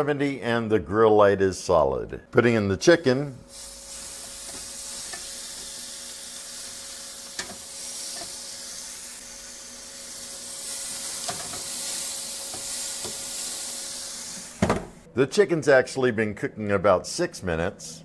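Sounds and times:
oven humming: 2.4 - 15.1
chicken sizzling on a grill: 3.5 - 14.6.

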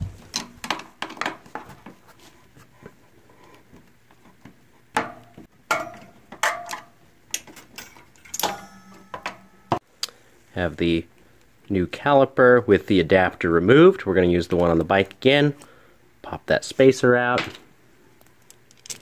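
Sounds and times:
metallic clicks and clatter of tools: 5.7 - 9.5
short metallic ring: 8.3 - 9.8.

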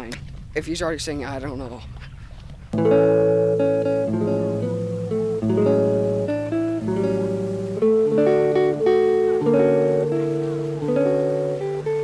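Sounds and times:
acoustic guitar picked chords: 2.8 - 12.0.

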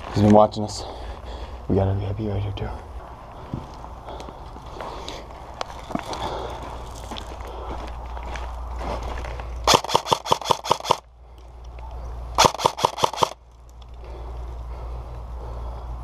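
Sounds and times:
airsoft gun shots: 9.7 - 11.0, 12.4 - 13.4.

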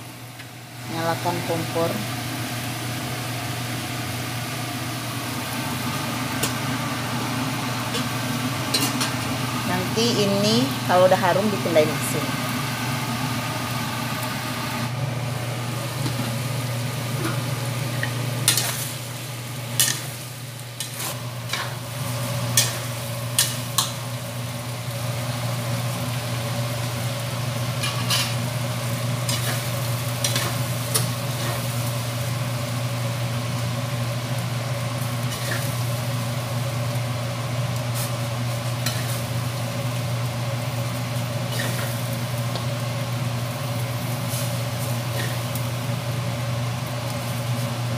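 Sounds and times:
meat sizzling in a wok: 0.0 - 47.9
metal spatula scraping wok: 35.3 - 35.7, 41.5 - 41.9.

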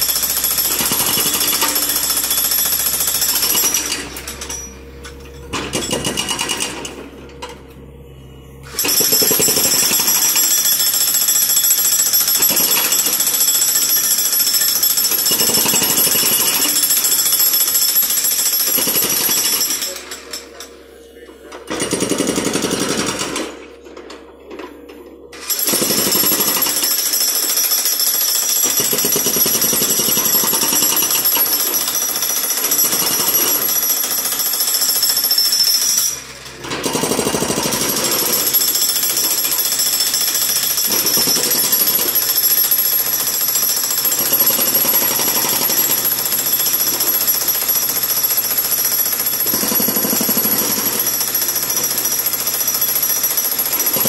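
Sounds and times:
hydraulic breaker hammering concrete: 0.0 - 7.6, 8.6 - 20.6, 21.6 - 24.6, 25.4 - 54.0.

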